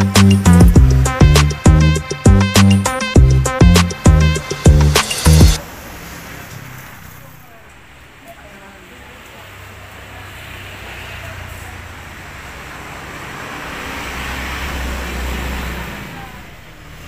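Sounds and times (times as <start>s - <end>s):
vehicle passing close by: 9.5s - 17.0s.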